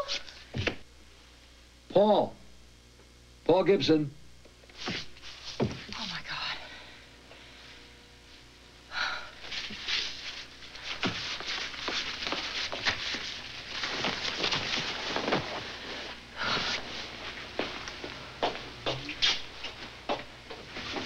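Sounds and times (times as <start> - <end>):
shuffling footsteps on hard floor: 4.7 - 6.0, 9.5 - 21.0.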